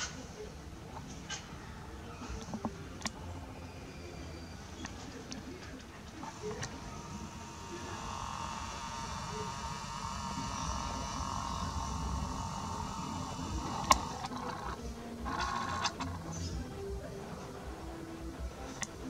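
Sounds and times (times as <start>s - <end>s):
camera zoom motor whirring: 6.3s - 16.7s.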